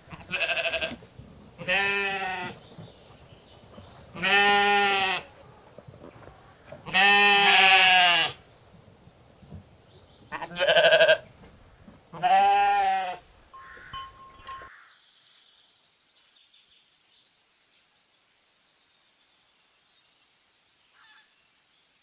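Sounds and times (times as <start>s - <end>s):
sheep bleating: 0.1s - 1.0s, 1.6s - 2.6s, 4.2s - 5.3s, 6.8s - 8.4s, 10.3s - 11.2s, 12.1s - 14.0s.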